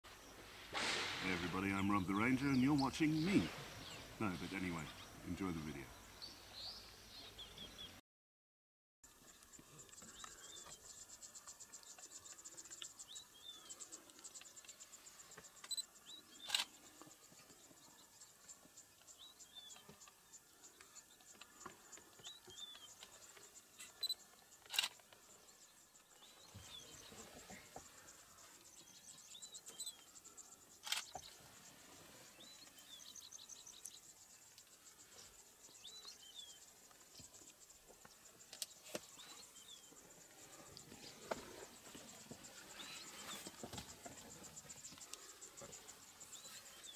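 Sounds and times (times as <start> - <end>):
insects trilling: 0.1 - 7.2, 9.1 - 46.9
bird chirps: 28.7 - 31.4, 41.0 - 46.9.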